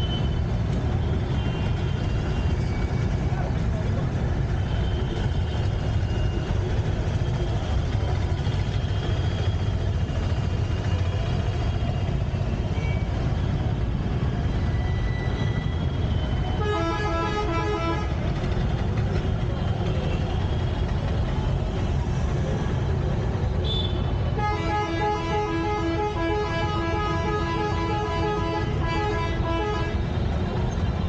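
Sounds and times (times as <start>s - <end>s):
traffic engines rumbling: 0.0s - 31.0s
vehicle horn pulsing: 16.6s - 18.2s, 23.6s - 30.3s.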